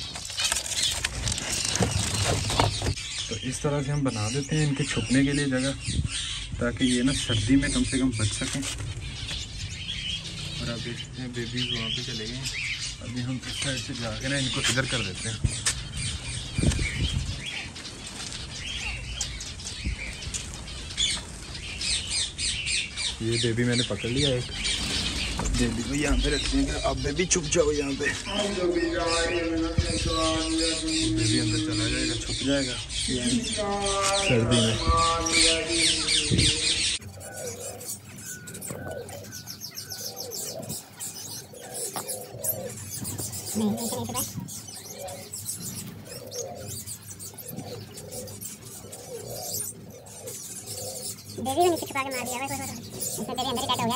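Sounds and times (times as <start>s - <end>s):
finches fluttering wings: 0.0s - 3.0s, 23.8s - 27.0s
finches twittering: 0.0s - 53.9s
high bird chirps: 0.0s - 53.9s
low thumps: 23.4s - 32.9s.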